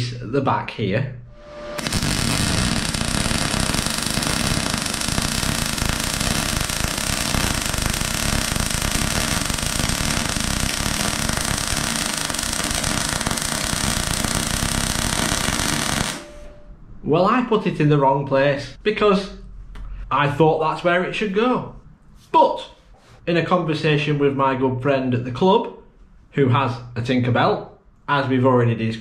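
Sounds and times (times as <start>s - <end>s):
welding arc crackling: 1.3s - 16.5s.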